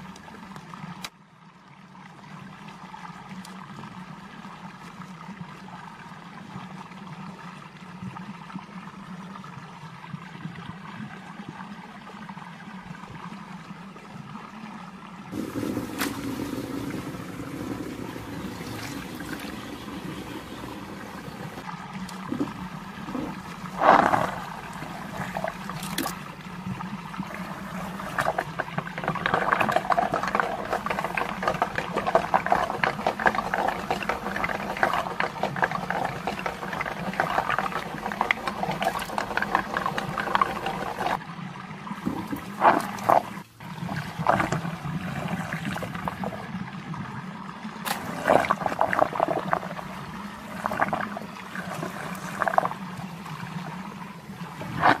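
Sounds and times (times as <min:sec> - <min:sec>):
water churning and gurgling: 0:00.0 - 0:55.0.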